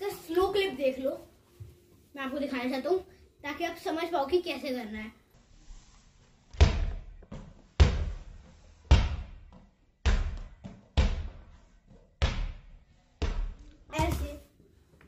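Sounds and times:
basketball bouncing on tiled floor: 0:06.6 - 0:14.4.

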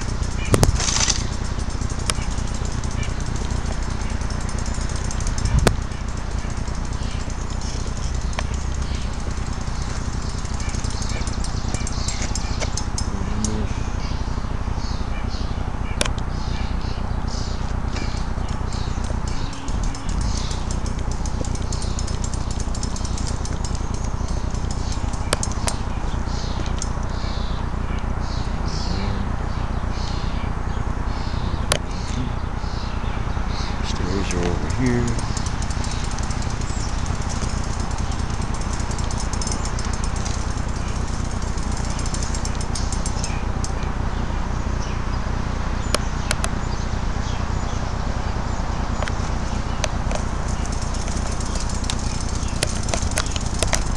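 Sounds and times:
thin high ticks: 0:00.0 - 0:13.7, 0:17.7 - 0:27.3, 0:33.8 - 0:43.9, 0:49.0 - 0:53.9
sharp clicks: 0:00.0 - 0:13.8, 0:17.6 - 0:28.9, 0:33.7 - 0:43.9, 0:49.0 - 0:53.9
outdoor background hiss: 0:00.0 - 0:53.9
low rumble on microphone: 0:17.4 - 0:39.2.

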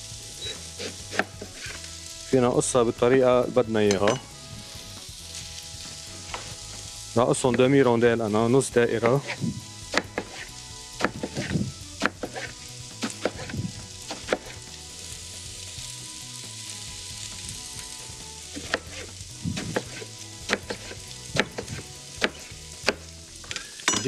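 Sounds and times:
vegetables sizzling in frying pan: 0:00.0 - 0:23.9
knife slicing on cutting board: 0:09.0 - 0:09.4, 0:10.0 - 0:13.5, 0:18.6 - 0:22.4.

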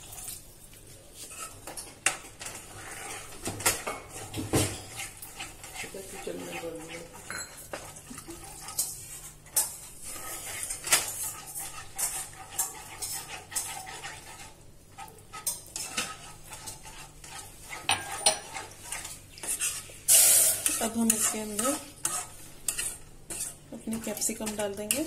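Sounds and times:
spoon scraping and clinking pan: 0:01.2 - 0:25.0.

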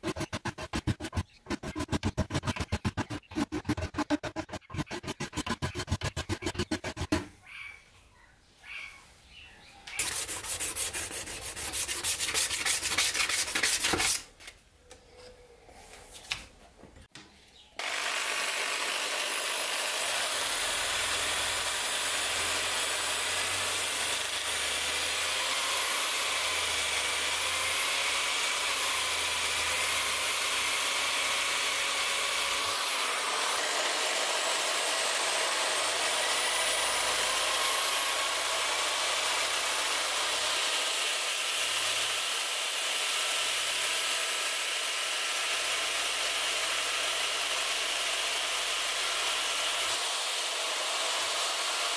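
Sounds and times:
rotary tool grinding metal: 0:00.0 - 0:07.3, 0:10.0 - 0:14.2
sandpaper rubbing metal: 0:00.0 - 0:07.3, 0:10.0 - 0:14.3.

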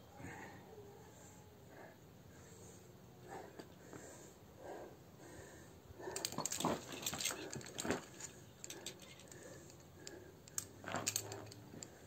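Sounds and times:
carabiners jangling: 0:06.0 - 0:12.0.

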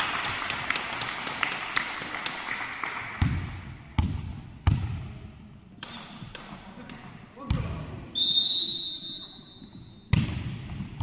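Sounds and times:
volleyball bouncing on wooden floor: 0:03.2 - 0:05.2, 0:10.1 - 0:11.0.

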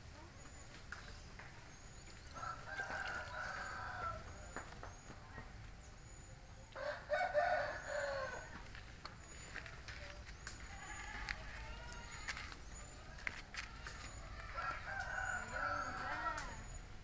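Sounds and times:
rooster crowing: 0:02.4 - 0:04.3, 0:06.8 - 0:08.6, 0:14.4 - 0:16.7.

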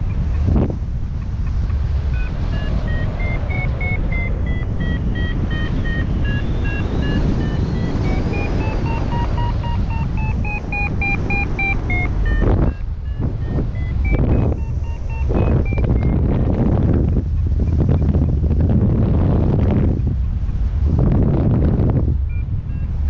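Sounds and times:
wind rush on microphone: 0:00.0 - 0:23.0
variometer short beeps: 0:01.2 - 0:18.4, 0:22.2 - 0:23.0.

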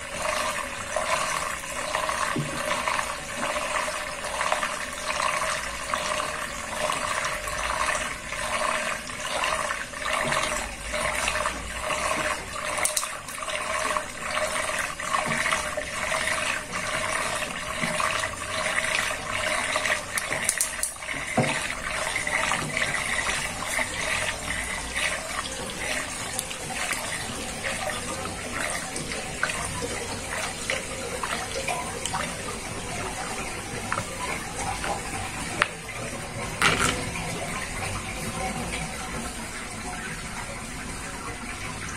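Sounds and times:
water draining down plughole: 0:00.0 - 0:41.9.

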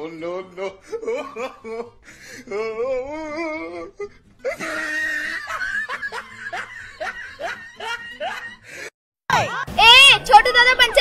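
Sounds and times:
person laughing hard: 0:03.7 - 0:09.6.

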